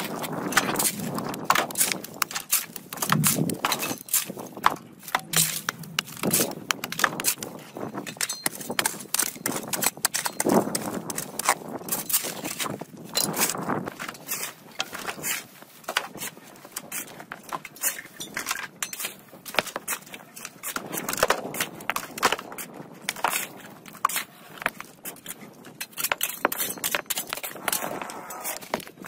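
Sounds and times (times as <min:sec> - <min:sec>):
rubble crunching and rustling: 0:00.0 - 0:29.0
bricks knocking together: 0:00.1 - 0:11.6.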